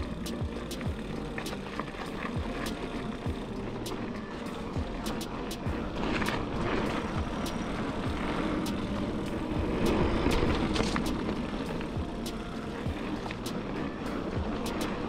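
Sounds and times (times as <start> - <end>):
bike tyre and rattle noise: 0.0 - 15.0
lo-fi hip-hop beat: 0.0 - 15.0.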